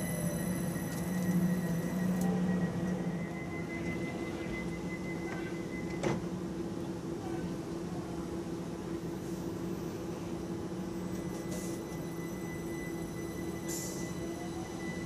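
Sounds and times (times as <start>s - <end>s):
train electrical hum: 0.0s - 15.0s.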